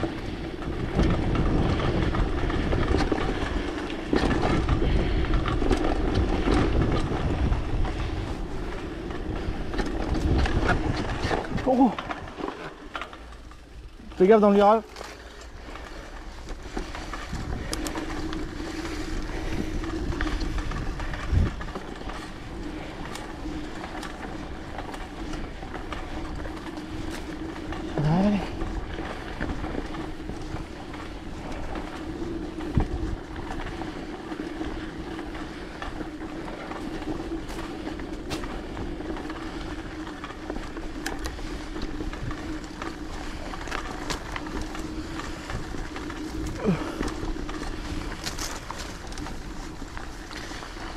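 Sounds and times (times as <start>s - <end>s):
bike rattling clicks: 0.0s - 50.9s
bike tyres rumbling on trail: 0.0s - 50.9s.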